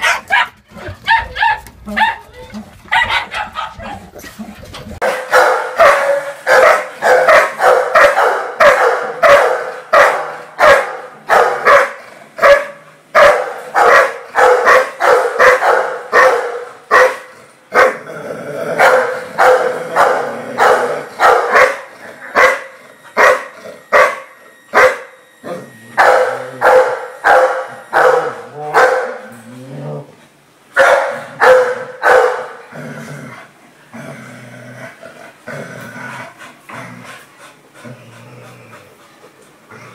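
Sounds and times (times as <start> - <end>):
dogs barking and yipping: 0.0 - 18.0, 18.8 - 25.2, 25.9 - 29.4, 30.8 - 32.6.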